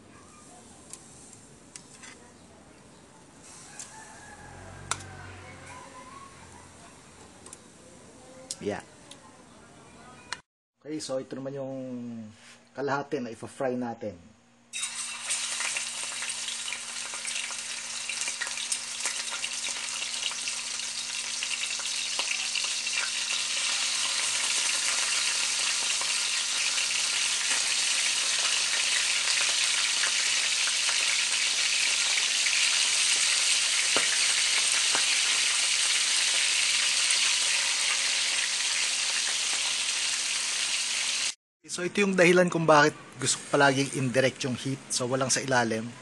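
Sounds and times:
chicken frying in hot oil: 3.7s - 5.2s, 14.7s - 41.4s.

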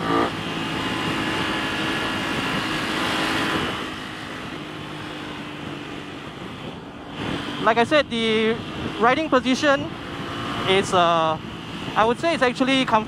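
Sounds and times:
motorcycle engine at road speed: 0.0s - 13.0s
wind rushing: 0.6s - 9.0s.

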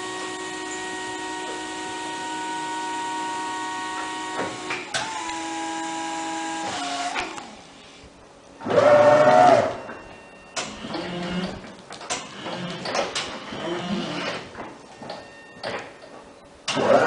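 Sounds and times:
hydraulic pump motor whining: 0.0s - 8.0s, 8.6s - 16.0s, 16.6s - 17.0s.

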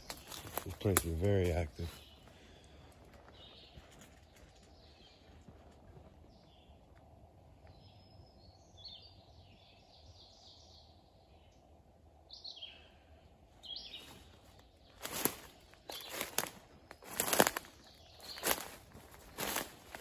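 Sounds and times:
small bird chirping: 13.6s - 20.0s.

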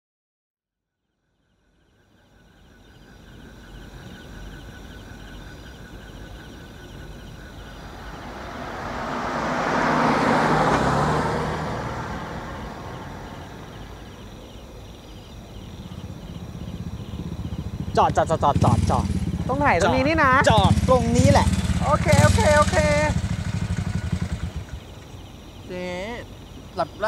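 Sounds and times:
car passing by: 7.0s - 14.7s, 15.7s - 25.1s
high fast-pulsing chirp: 12.5s - 27.0s.

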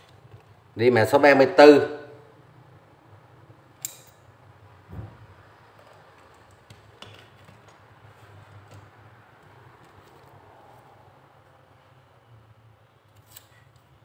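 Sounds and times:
metal hand tools clicking: 3.8s - 4.2s.

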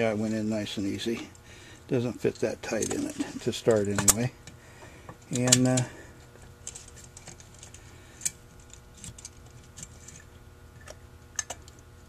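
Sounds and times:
metal carburetor parts clicking: 2.2s - 4.6s, 5.3s - 5.9s, 7.2s - 11.8s.

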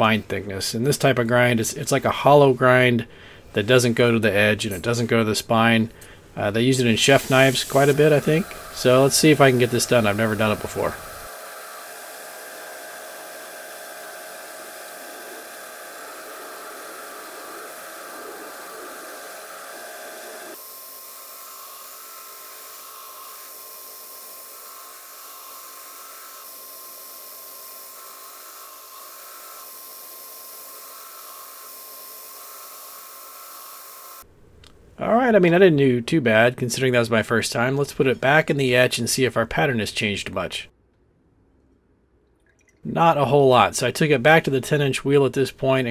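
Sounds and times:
belt grinder grinding blade: 7.0s - 34.2s.

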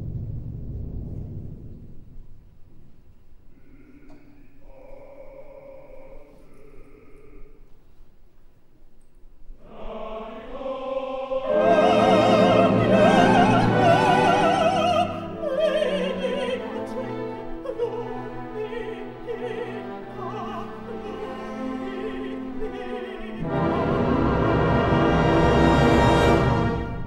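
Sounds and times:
woman singing opera: 11.4s - 23.5s
orchestra playing: 11.4s - 27.0s.

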